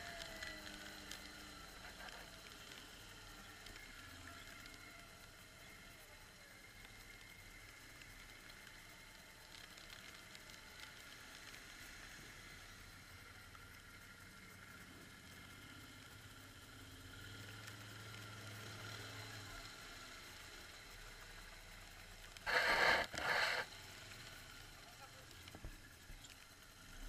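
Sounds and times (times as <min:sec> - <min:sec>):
quad bike engine running: 0:00.0 - 0:27.0
loud short bursts: 0:22.5 - 0:23.7.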